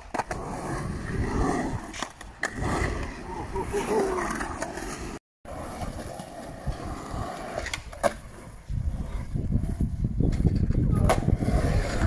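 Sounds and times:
skateboard wheels rolling on concrete: 0:00.0 - 0:12.0
skateboard clack: 0:10.3 - 0:12.0.

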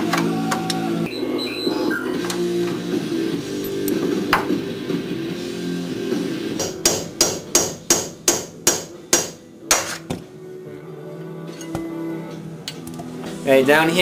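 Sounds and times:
guitar music: 0:00.0 - 0:06.9.

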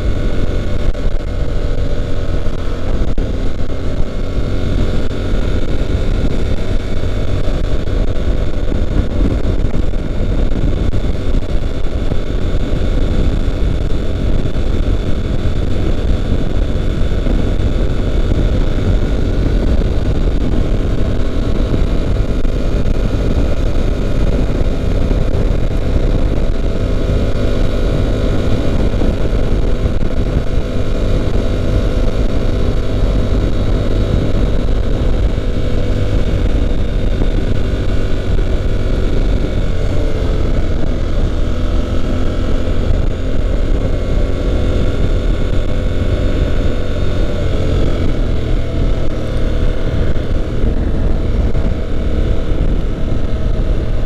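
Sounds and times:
motorcycle engine cruising: 0:00.0 - 0:54.0
wind and road noise: 0:00.0 - 0:54.0.

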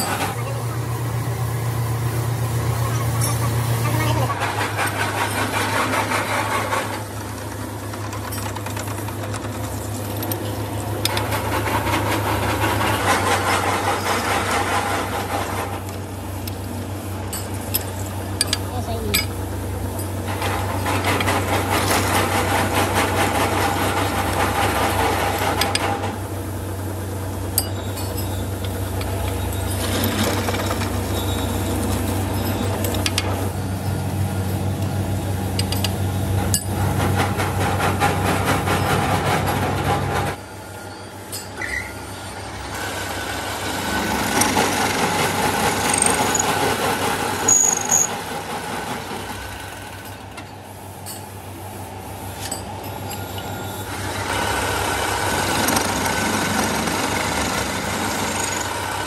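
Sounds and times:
harsh metal grinding: 0:00.0 - 0:16.6, 0:35.4 - 0:48.5
motor hum: 0:42.0 - 0:50.6.

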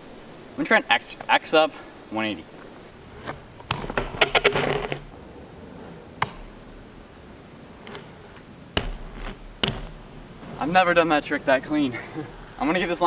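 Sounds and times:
bike clicks and rattles: 0:02.6 - 0:05.2, 0:06.2 - 0:06.9, 0:07.8 - 0:10.6.

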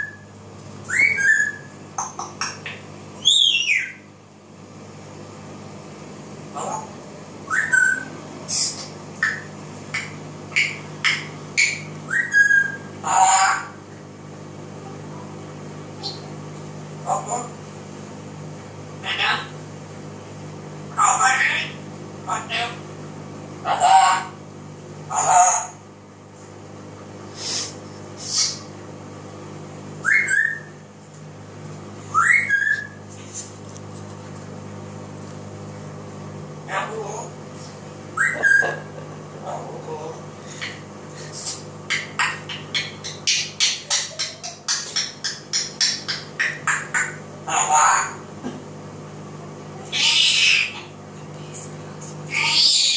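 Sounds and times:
parrot whistling and chirping: 0:00.0 - 0:01.8, 0:02.6 - 0:04.1, 0:06.6 - 0:13.7, 0:28.2 - 0:28.7, 0:30.0 - 0:30.8, 0:32.1 - 0:33.0, 0:38.2 - 0:38.9, 0:40.5 - 0:48.2, 0:49.9 - 0:50.9, 0:52.3 - 0:52.9
loud parrot call: 0:07.5 - 0:13.8, 0:25.1 - 0:25.8, 0:41.9 - 0:48.2, 0:49.9 - 0:50.9, 0:52.3 - 0:52.9.

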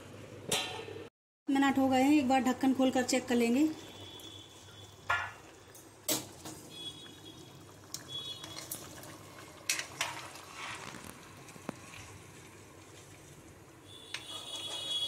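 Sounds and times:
curry bubbling and slopping: 0:03.8 - 0:15.0.

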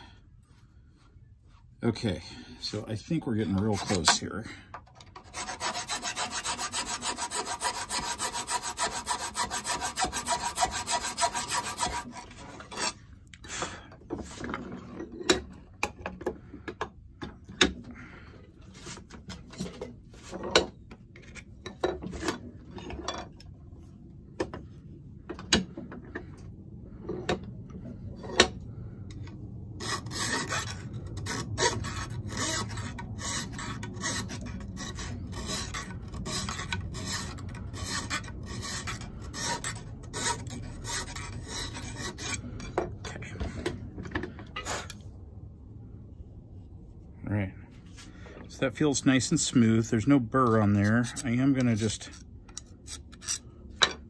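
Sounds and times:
steel file rasping on metal: 0:05.2 - 0:13.1, 0:29.8 - 0:42.8, 0:50.8 - 0:53.5
tool handling knocks and clunks: 0:19.0 - 0:23.5, 0:42.6 - 0:44.7.

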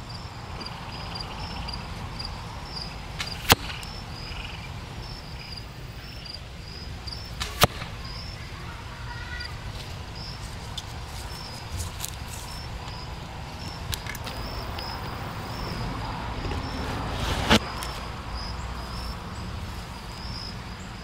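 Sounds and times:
arrows striking foam target: 0:03.2 - 0:03.9, 0:07.4 - 0:08.0, 0:17.2 - 0:17.7.

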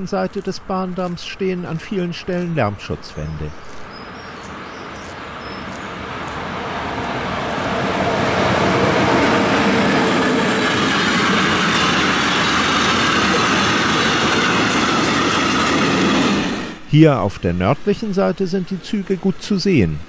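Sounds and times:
freight train wheels rumbling on rails: 0:03.6 - 0:16.9.

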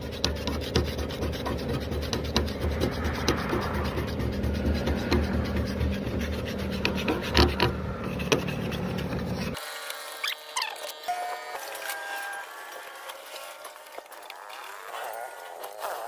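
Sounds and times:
steady low hum: 0:00.0 - 0:09.9
scraper blade scraping metal: 0:00.0 - 0:16.0.

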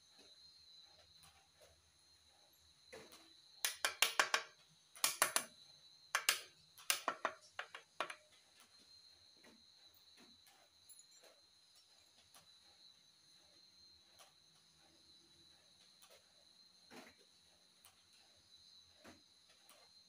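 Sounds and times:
metal clinks and taps: 0:03.0 - 0:05.5, 0:06.2 - 0:08.4, 0:10.8 - 0:12.4.

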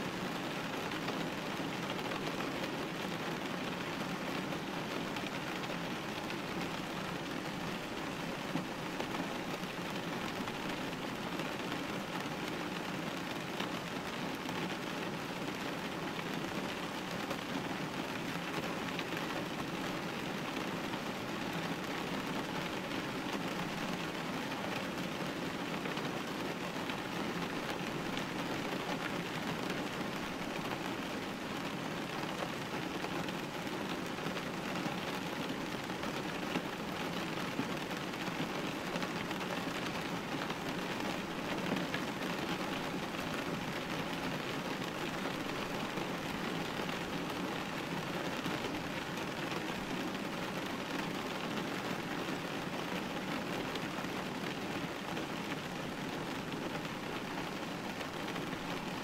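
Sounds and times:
rain hitting window glass: 0:00.2 - 0:59.0.

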